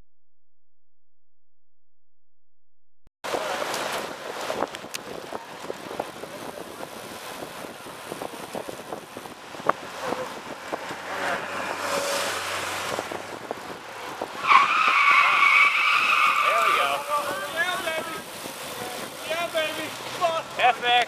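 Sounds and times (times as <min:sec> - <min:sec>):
wind noise: 0:03.3 - 0:19.5
road noise from bikes: 0:03.3 - 0:21.0
vehicle engine approaching: 0:09.8 - 0:14.2.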